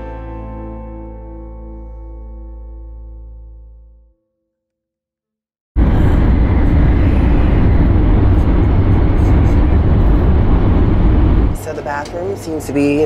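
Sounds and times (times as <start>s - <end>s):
train rumbling at high speed: 5.8s - 13.0s.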